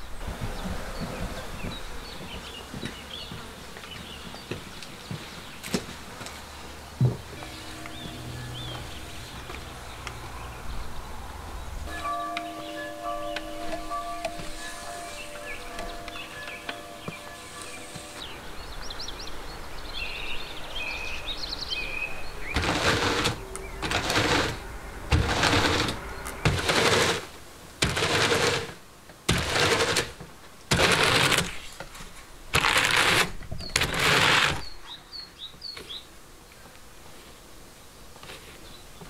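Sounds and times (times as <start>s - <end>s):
birds chirping: 0.0s - 24.7s, 33.6s - 36.7s
hand cards brushing wool: 14.3s - 18.3s, 22.6s - 31.7s, 32.6s - 34.7s.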